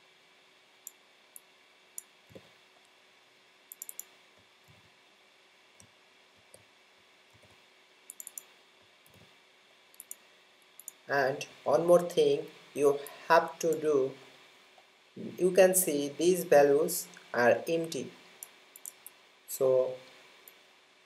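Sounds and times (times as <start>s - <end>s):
computer keyboard clicks: 3.7s - 4.1s, 8.1s - 8.5s
mouse clicks: 3.7s - 4.1s, 8.1s - 8.5s, 9.9s - 10.2s, 10.8s - 11.0s, 18.4s - 19.2s.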